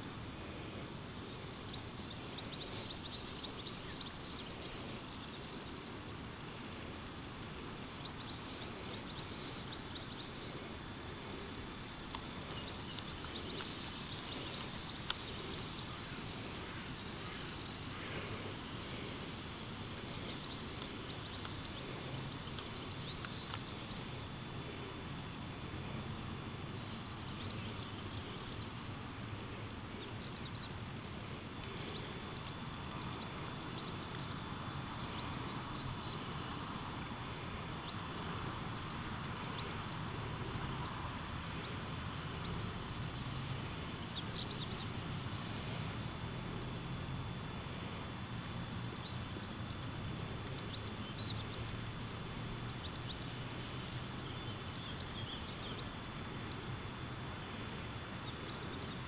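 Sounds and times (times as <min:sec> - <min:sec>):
low background hum: 0:00.0 - 0:59.0
small birds chirping: 0:00.0 - 0:59.0.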